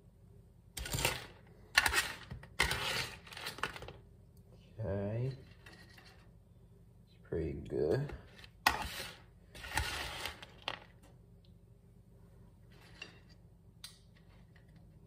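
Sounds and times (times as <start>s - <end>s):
tongs scraping and rustling: 0.8s - 4.0s, 12.6s - 15.0s.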